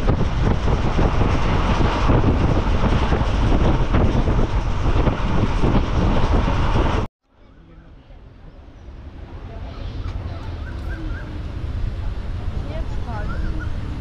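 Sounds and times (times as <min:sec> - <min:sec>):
wind buffeting microphone: 0:00.0 - 0:07.1, 0:08.2 - 0:14.0
train running: 0:00.0 - 0:14.0.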